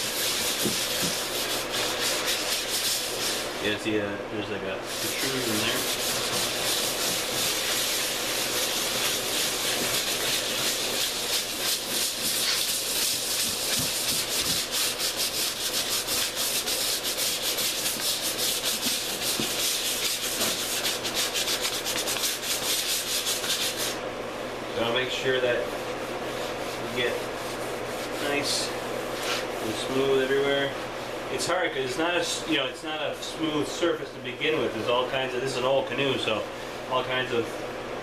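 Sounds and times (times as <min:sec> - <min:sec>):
sandpaper wet sanding by hand: 0:00.0 - 0:03.7, 0:04.8 - 0:24.0, 0:25.1 - 0:30.7.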